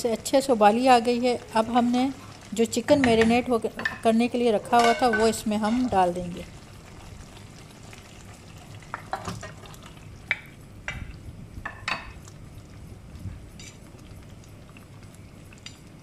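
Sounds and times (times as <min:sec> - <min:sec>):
sauce bubbling: 0:00.0 - 0:16.0
dish clinking and scraping on pan: 0:04.7 - 0:05.9.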